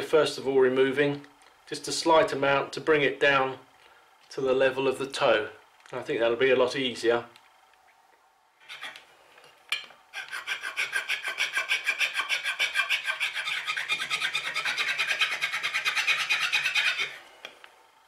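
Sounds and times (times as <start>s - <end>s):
hand file rubbing on wood: 10.1s - 17.2s.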